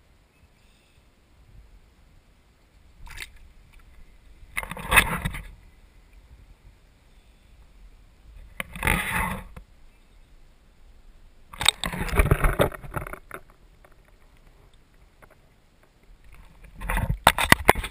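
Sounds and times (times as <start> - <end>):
water splashing and sloshing: 2.8 - 6.3, 8.3 - 9.7, 11.4 - 17.9.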